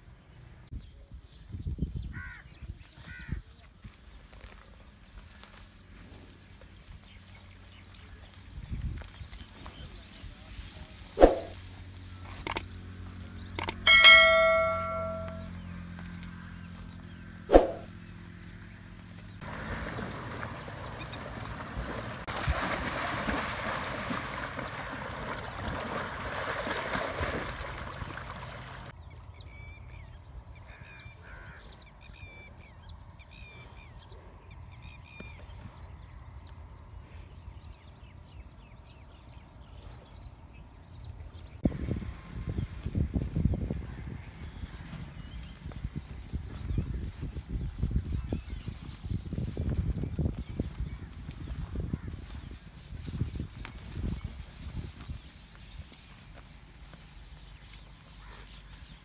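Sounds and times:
sharp clicks: 0:12.4 - 0:12.7, 0:13.5 - 0:13.8
bell-like ding: 0:13.9 - 0:15.5
water splashing: 0:19.4 - 0:28.9
small birds chirping: 0:42.5 - 0:59.0.

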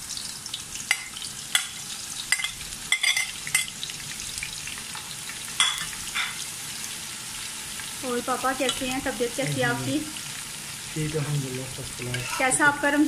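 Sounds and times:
onions sizzling in hot oil: 0:00.0 - 0:13.0
steel spoon clinking: 0:02.3 - 0:03.7.

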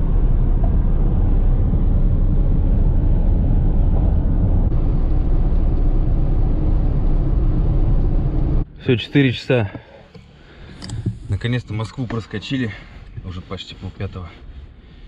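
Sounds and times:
car driving at speed: 0:00.0 - 0:08.7
road noise: 0:00.0 - 0:15.0.

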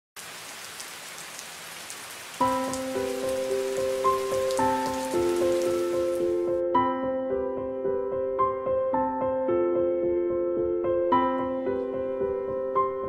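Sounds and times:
steady rain falling: 0:00.2 - 0:06.5
piano music: 0:02.4 - 0:13.0.

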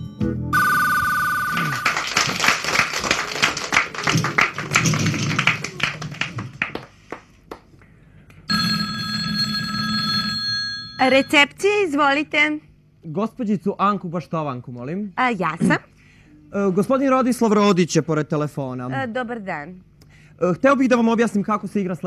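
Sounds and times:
telephone bell trill: 0:00.6 - 0:02.1, 0:08.5 - 0:11.4
telephone ringing: 0:00.6 - 0:02.2, 0:08.5 - 0:11.5
audience clapping: 0:01.5 - 0:07.9.

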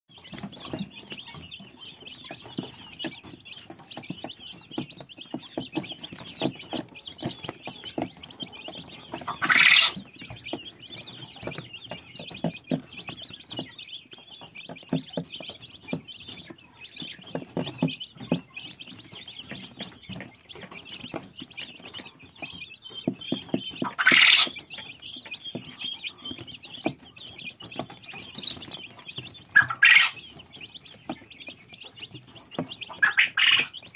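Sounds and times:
chicks peeping: 0:00.1 - 0:33.9
loud shrill peeps: 0:09.3 - 0:10.0, 0:23.9 - 0:24.6, 0:29.6 - 0:30.2.

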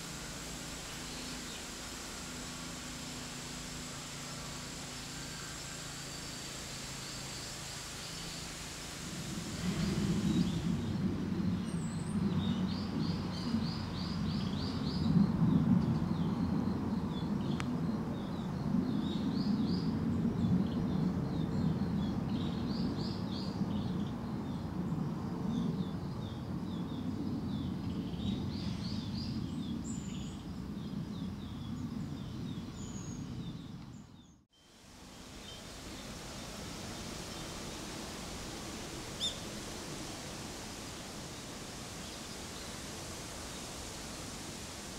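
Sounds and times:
wind buffeting microphone: 0:08.5 - 0:34.3.

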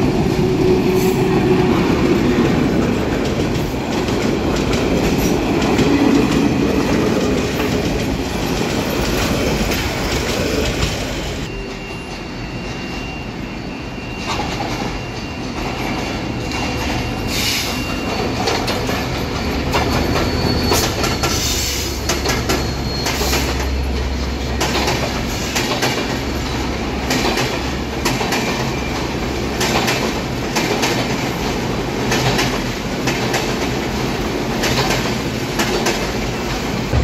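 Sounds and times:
train coaches rumbling past: 0:00.0 - 0:37.0
wheels clacking over rail joints: 0:18.0 - 0:37.0.

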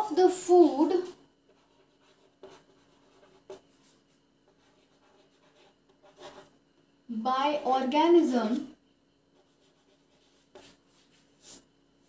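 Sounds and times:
faint scratching of handwriting: 0:01.5 - 0:06.6, 0:09.3 - 0:11.8.

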